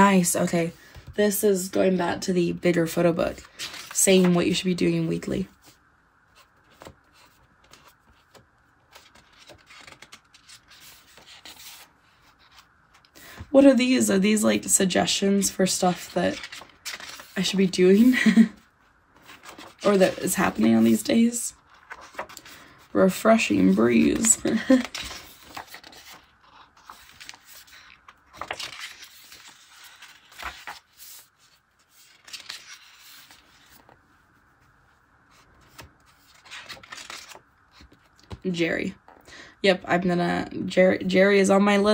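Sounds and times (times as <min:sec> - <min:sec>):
paper rustling: 0:03.0 - 0:13.2, 0:15.3 - 0:18.5, 0:19.2 - 0:34.7, 0:35.3 - 0:38.4.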